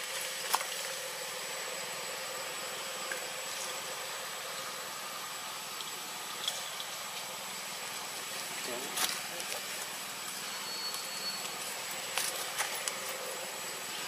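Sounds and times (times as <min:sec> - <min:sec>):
faint hum: 0:00.0 - 0:14.0
thin high steady tone: 0:00.0 - 0:14.0.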